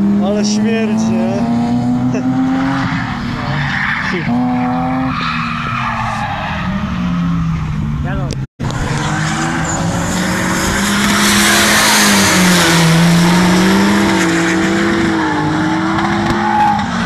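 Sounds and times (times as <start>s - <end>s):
car engines at high revs: 0.0s - 17.0s
tyres screeching: 2.6s - 7.5s.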